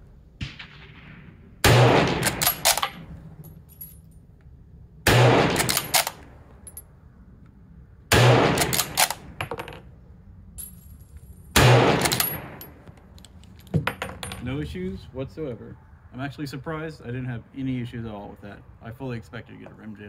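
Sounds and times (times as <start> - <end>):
rifle shots: 0.4 - 3.4, 5.0 - 6.4, 8.1 - 9.5, 11.6 - 12.8
metallic clicks of rifle bolt: 2.2 - 3.0, 5.5 - 6.3, 8.6 - 9.2, 12.0 - 13.7.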